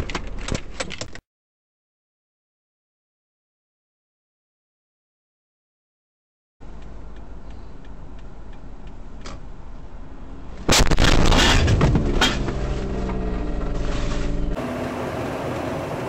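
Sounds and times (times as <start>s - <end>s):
light regular ticking: 6.6s - 10.2s
low cabin rumble: 6.6s - 14.6s
car crash crunching impacts: 10.6s - 14.6s.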